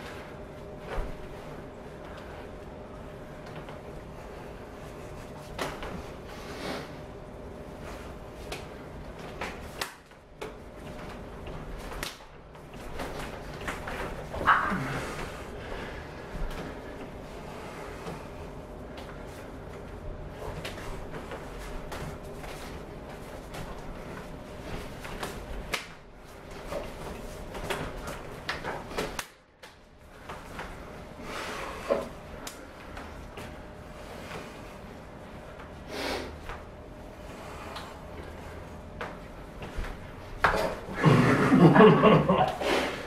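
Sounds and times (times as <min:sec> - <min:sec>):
forearms and hands slapping: 0:05.2 - 0:06.1, 0:08.4 - 0:15.3, 0:24.6 - 0:30.8, 0:31.9 - 0:33.5.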